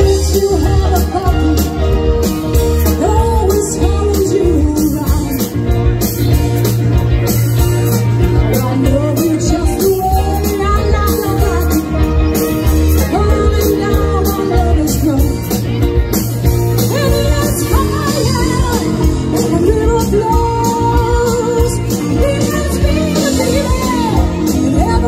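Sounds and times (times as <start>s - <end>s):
woman singing: 0.0s - 2.0s, 2.8s - 5.6s, 8.4s - 12.2s, 12.8s - 15.6s, 16.8s - 25.0s
rock band playing: 0.0s - 25.0s.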